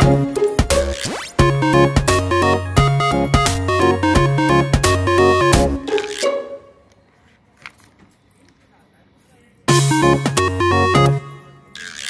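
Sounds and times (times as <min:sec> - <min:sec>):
synthesized melody: 0:00.0 - 0:06.8, 0:09.7 - 0:11.8
faint background noise: 0:06.0 - 0:09.8.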